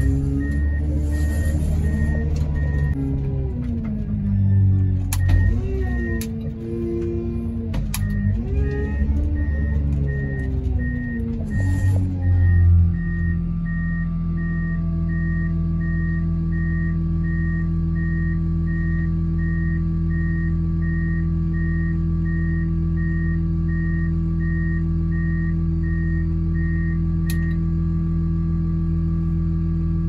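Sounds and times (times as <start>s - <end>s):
reverse warning beeper: 0.0s - 3.2s, 4.2s - 7.3s, 8.0s - 27.6s
diesel engine hum: 0.0s - 30.0s
click: 5.1s - 5.4s, 6.1s - 6.4s, 27.3s - 27.6s.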